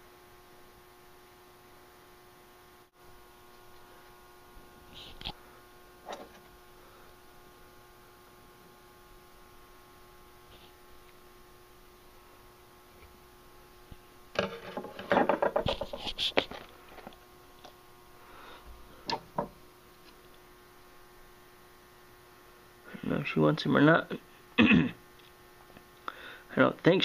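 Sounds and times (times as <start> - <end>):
steady electrical hum: 0.0 - 27.0
handling clattering and knocking: 14.4 - 16.0.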